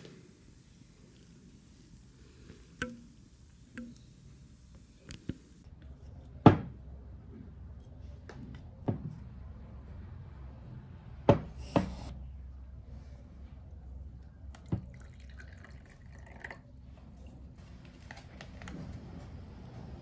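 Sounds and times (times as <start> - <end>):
steady low hum: 0.0 - 6.1.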